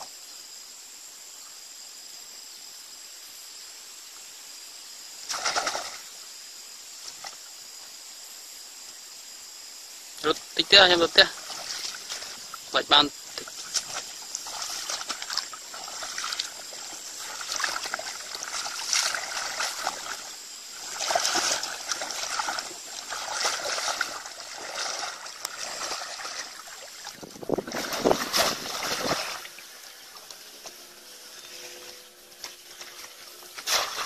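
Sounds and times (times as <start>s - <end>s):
wading through muddy water: 10.2s - 34.0s.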